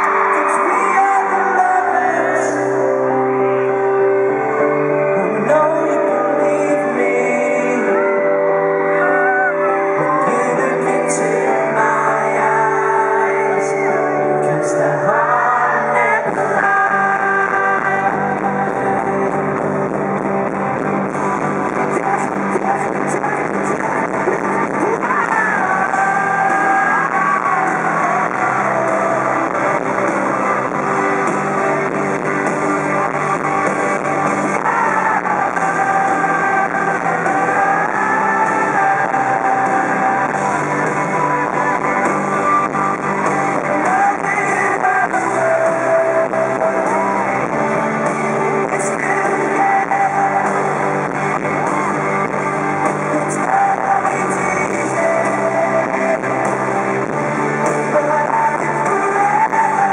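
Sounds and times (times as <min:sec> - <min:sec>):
man singing: 0:00.0 - 0:04.0, 0:04.8 - 0:59.9
electric guitar chords: 0:00.0 - 0:59.9
drums and bass: 0:15.9 - 0:59.9.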